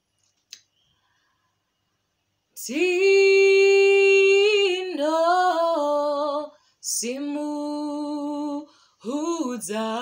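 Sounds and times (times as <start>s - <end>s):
woman singing unaccompanied: 2.6s - 10.0s.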